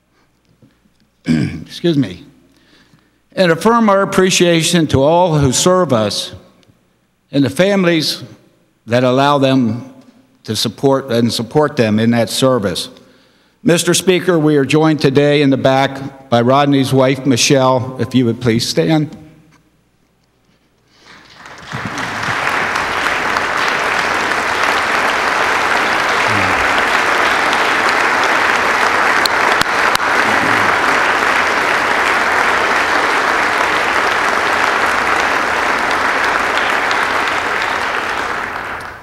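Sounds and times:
people applauding: 21.0 - 39.0.

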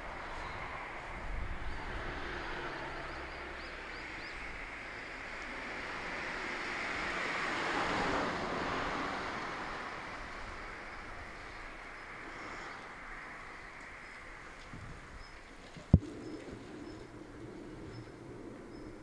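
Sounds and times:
cars passing: 0.0 - 19.0
bird chirping: 15.1 - 19.0.

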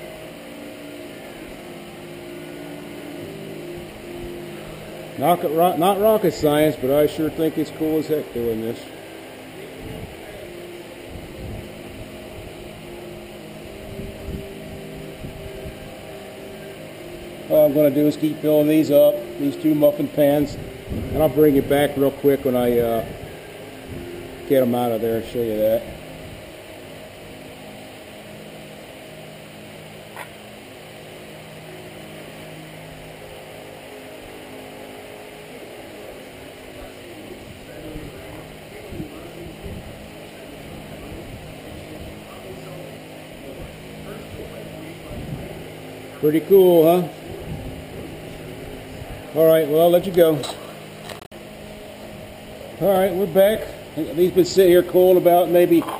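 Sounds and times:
gas burner humming: 0.0 - 55.9
gas burner rushing: 1.5 - 27.2.

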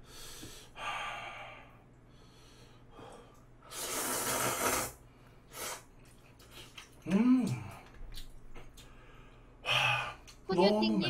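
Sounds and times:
man slurping noodles: 3.7 - 5.9.

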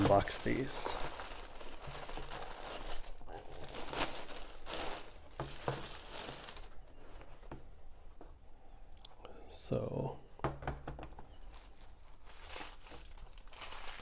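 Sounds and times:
plastic bag crinkling: 0.0 - 6.9, 11.2 - 14.0.

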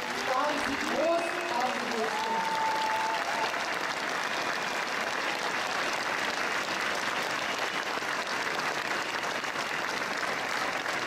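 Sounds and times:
large crowd applauding: 0.0 - 11.0.

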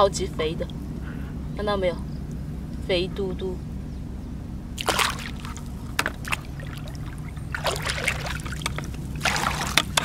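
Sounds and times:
steady low rumble: 0.0 - 10.0
shallow water splashing: 4.8 - 10.0.

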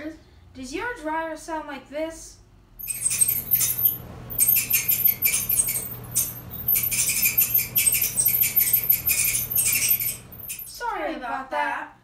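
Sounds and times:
high-pitched squeaking: 2.8 - 10.9.

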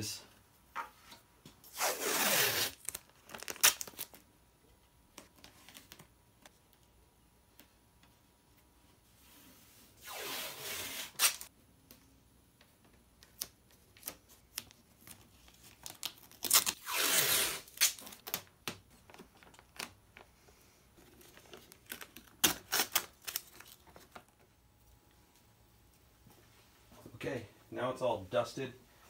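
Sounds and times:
tape ripping off roll: 1.7 - 4.1, 10.0 - 11.5, 16.0 - 18.5, 21.9 - 23.5
tape clicks and crackles: 17.8 - 20.3.

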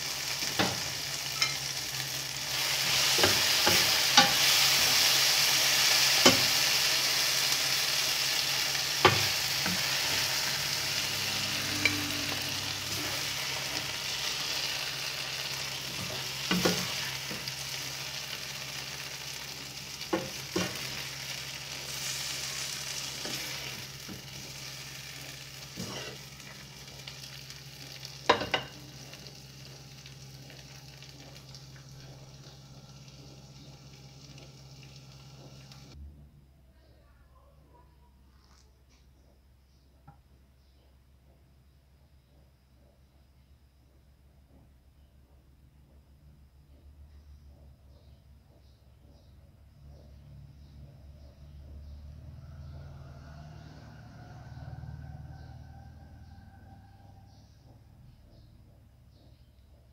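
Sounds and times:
vegetables sizzling in a pan: 0.0 - 36.0.

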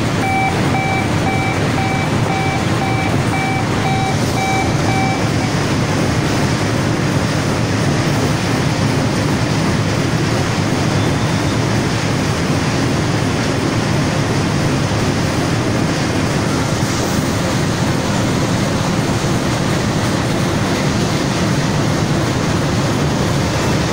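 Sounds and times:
steady machine din: 0.0 - 10.9.

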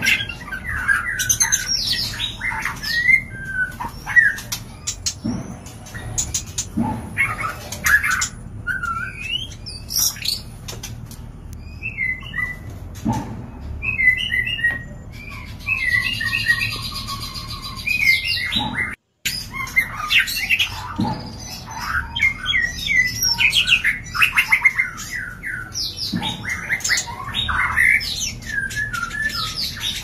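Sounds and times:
bird chirps and whistles: 7.2 - 10.5, 13.8 - 30.0.

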